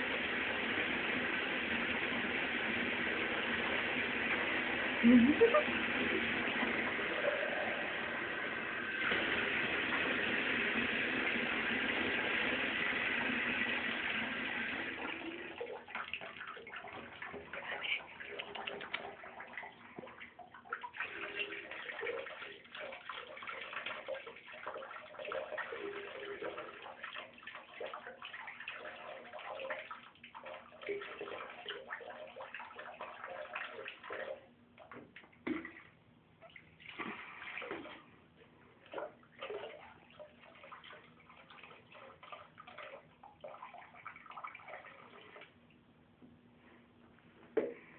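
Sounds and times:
water rushing into bathtub: 0:00.0 - 0:38.2, 0:38.8 - 0:45.6
water splashing and sloshing: 0:15.0 - 0:46.9.

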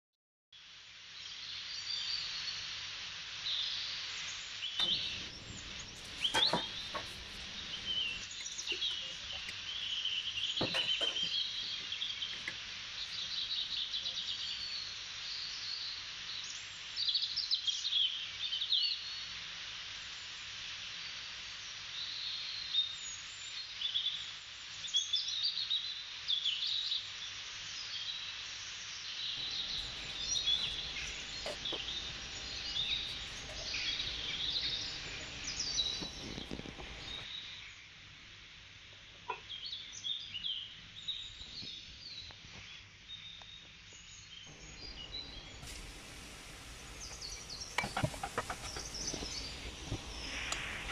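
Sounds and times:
steady hiss: 0:00.6 - 0:50.9
birds chirping and trilling: 0:04.7 - 0:14.8, 0:29.4 - 0:37.4, 0:44.0 - 0:50.9.

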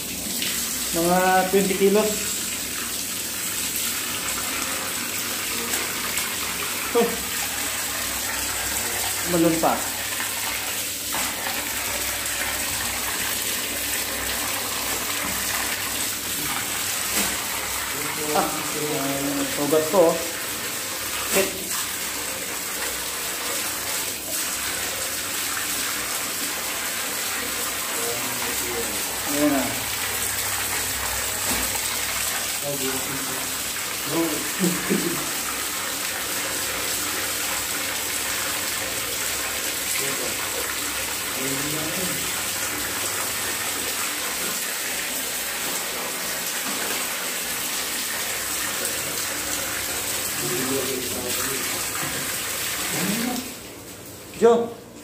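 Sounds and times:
tap water splashing into basin: 0:01.6 - 0:18.8, 0:19.4 - 0:54.4
tap water splashing onto fish: 0:11.1 - 0:11.7, 0:14.8 - 0:17.6, 0:30.7 - 0:32.5, 0:46.5 - 0:47.1.

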